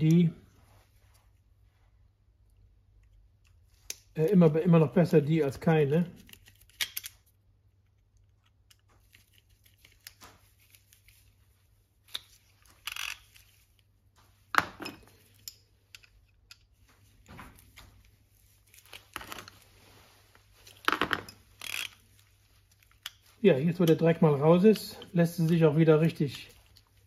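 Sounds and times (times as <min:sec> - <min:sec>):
screwdriver metal clicks and scrapes: 0:06.2 - 0:07.3, 0:12.1 - 0:13.8, 0:14.8 - 0:16.8, 0:20.6 - 0:22.0.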